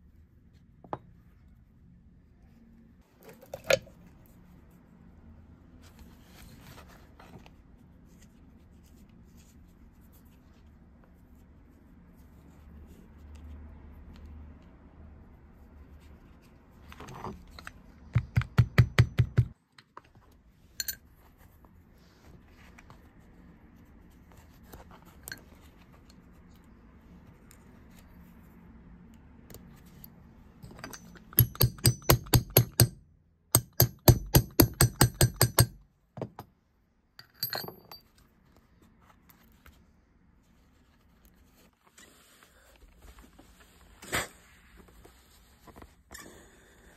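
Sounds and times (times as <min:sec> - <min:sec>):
light metal hammer taps: 0:33.6 - 0:36.5.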